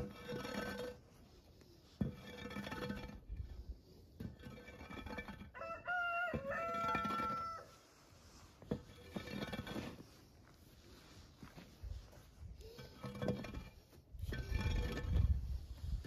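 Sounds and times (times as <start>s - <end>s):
hoe scraping through dirt: 0.0s - 16.0s
rooster crowing: 5.5s - 7.8s.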